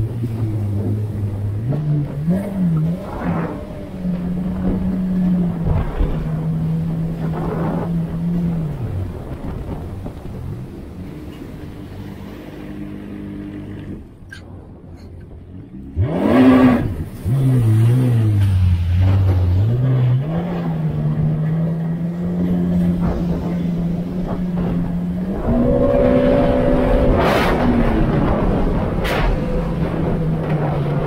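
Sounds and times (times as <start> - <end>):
personal watercraft engine revving: 0.0 - 31.0.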